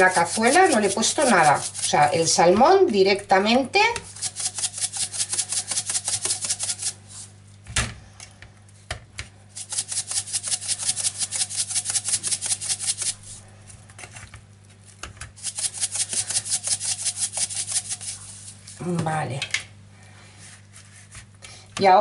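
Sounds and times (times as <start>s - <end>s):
salt shaker rattling: 0.0s - 2.1s, 4.1s - 7.2s, 9.5s - 13.4s, 15.4s - 18.7s.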